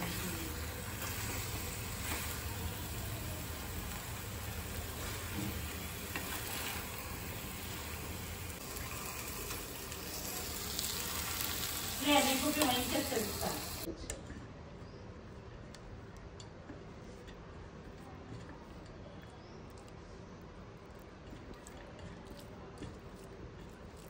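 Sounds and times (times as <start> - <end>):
steel spoon scraping: 0.0 - 9.6
food sizzling in metal pan: 0.0 - 13.9.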